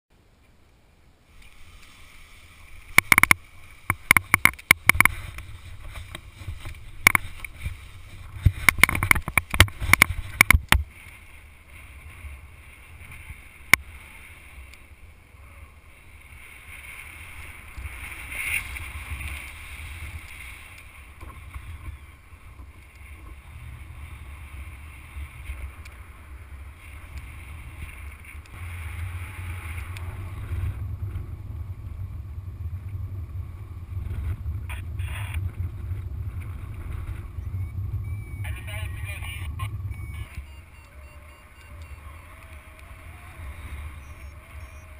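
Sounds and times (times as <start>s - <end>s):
wind buffeting microphone: 2.6s - 44.9s
sharp clicks and knocks: 2.9s - 5.4s, 6.1s - 7.5s, 8.4s - 10.9s.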